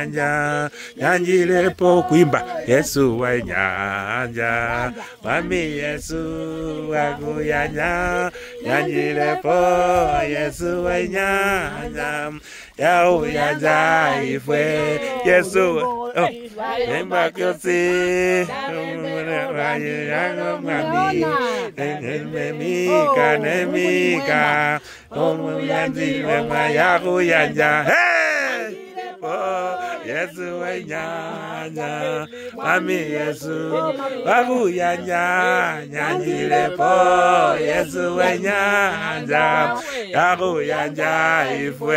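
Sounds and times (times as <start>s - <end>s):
group singing unaccompanied: 0.0s - 41.9s.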